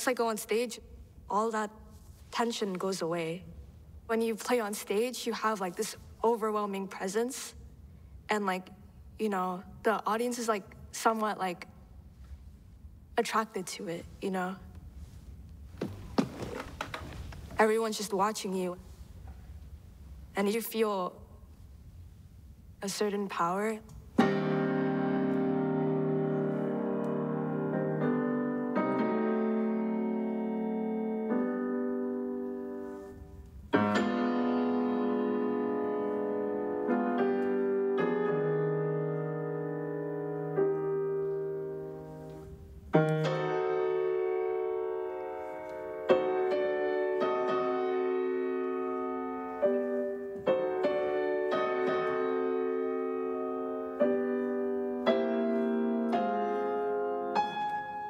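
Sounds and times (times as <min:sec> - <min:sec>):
solo piano chords: 0:24.2 - 0:58.0.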